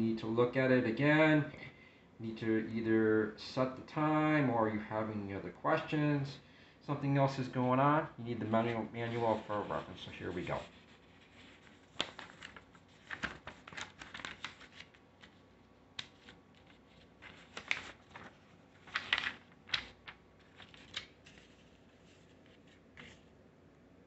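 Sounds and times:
paper leaflet crinkling: 8.5 - 23.4.

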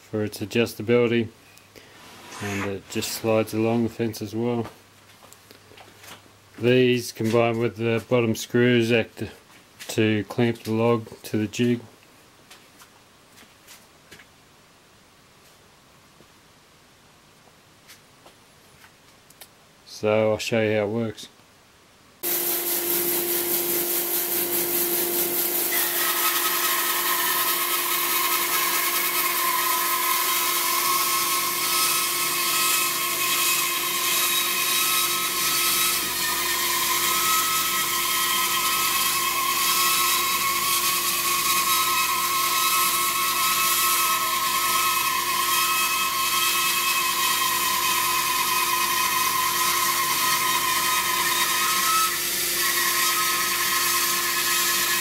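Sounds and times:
bandsaw motor running: 22.2 - 45.4
blade whining cutting wood: 22.2 - 55.0.

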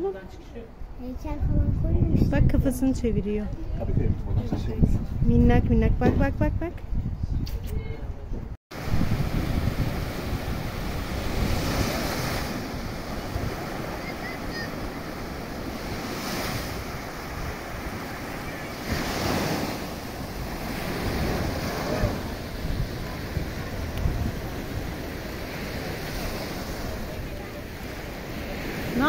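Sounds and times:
wind buffeting microphone: 0.8 - 29.0
surf breaking on beach: 8.7 - 29.0.

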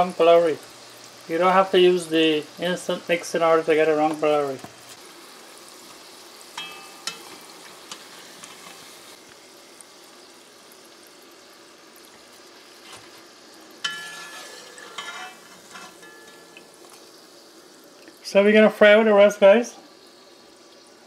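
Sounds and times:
fritters sizzling in hot oil: 0.0 - 21.0
metal spoon clinking on pot: 6.6 - 7.4, 13.8 - 16.7.

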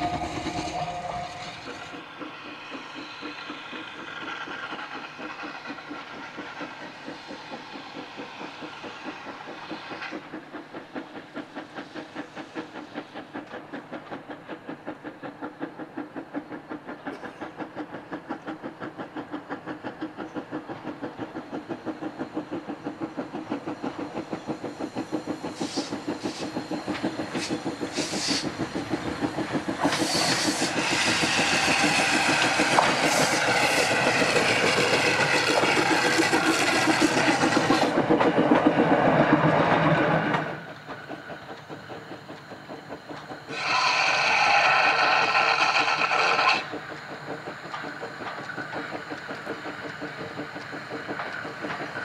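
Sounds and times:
steam engine exhaust beating: 0.0 - 52.0
steam hiss: 0.0 - 52.0
train clattering: 0.0 - 52.0.

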